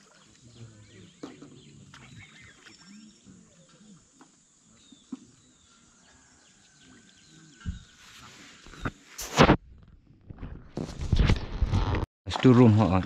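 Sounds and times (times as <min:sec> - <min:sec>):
bird calls: 0:00.0 - 0:09.0.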